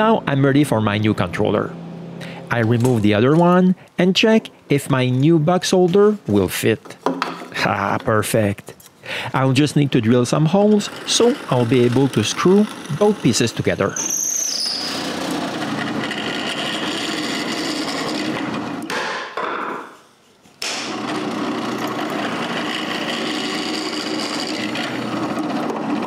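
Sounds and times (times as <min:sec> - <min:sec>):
electric drill drilling wood: 0:10.4 - 0:19.0, 0:20.6 - 0:26.0.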